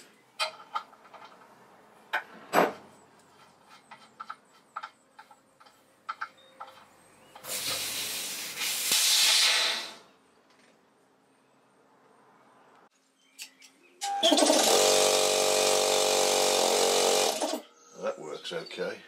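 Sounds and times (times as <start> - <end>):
compressed air hissing: 7.4 - 10.1.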